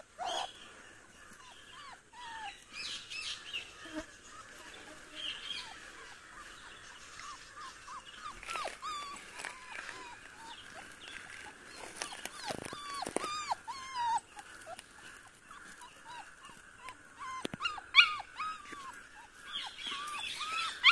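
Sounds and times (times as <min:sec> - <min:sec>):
puppies whining and yelping: 0:00.0 - 0:04.8, 0:05.4 - 0:20.9.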